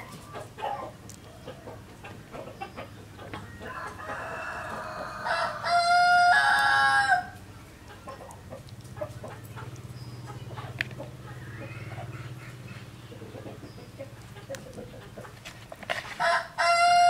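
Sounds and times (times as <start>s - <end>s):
rooster crowing: 3.5s - 7.4s, 16.2s - 17.0s.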